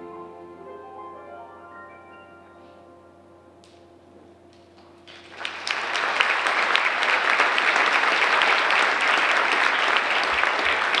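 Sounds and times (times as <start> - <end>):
faint piano tones: 0.0 - 5.2
audience applause: 5.0 - 11.0.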